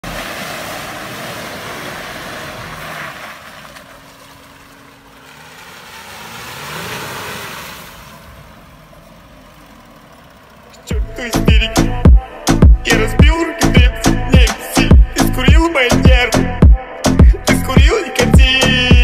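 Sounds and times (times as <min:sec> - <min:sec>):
tyres churning in mud: 0:00.0 - 0:10.9
diesel engine revving: 0:00.0 - 0:19.0.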